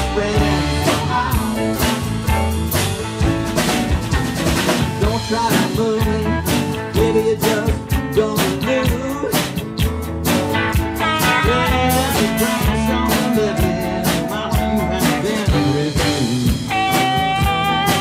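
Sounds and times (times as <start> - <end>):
electric guitar: 0.0 - 18.0
steady drum beat: 0.0 - 18.0
pedal steel guitar lead: 10.1 - 18.0.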